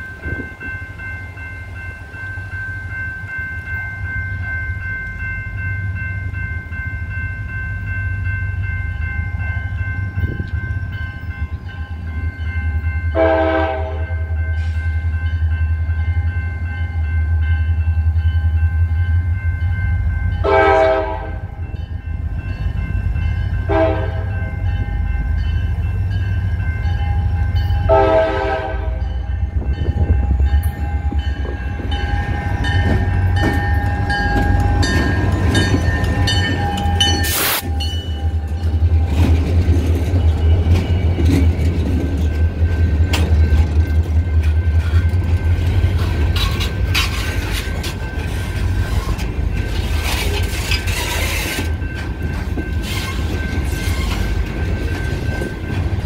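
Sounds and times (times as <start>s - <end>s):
crossing bell ringing: 0.0s - 56.0s
train horn blasts: 13.1s - 14.8s, 20.4s - 21.6s, 23.6s - 24.5s, 27.8s - 29.2s
wheels clicking over rail joints: 30.4s - 56.0s.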